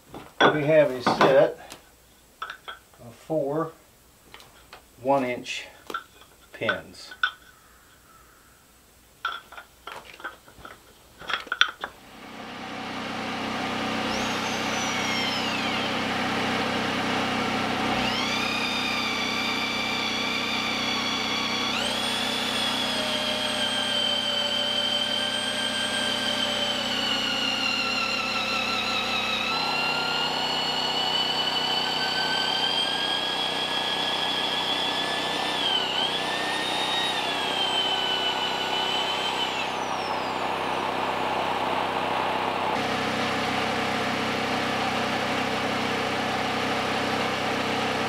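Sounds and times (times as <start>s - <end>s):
generator humming: 11.2s - 48.0s
power drill boring into wood: 12.0s - 48.0s.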